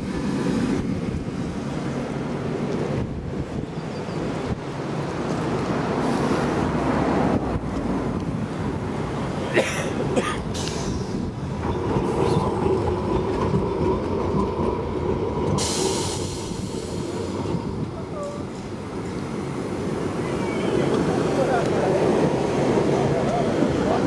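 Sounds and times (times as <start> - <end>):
tram steady hum: 0.0 - 24.0
hiss: 15.6 - 17.4.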